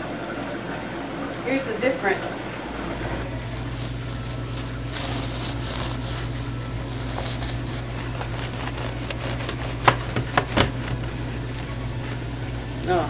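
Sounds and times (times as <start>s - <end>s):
bread knife sawing through loaf: 3.7s - 12.4s.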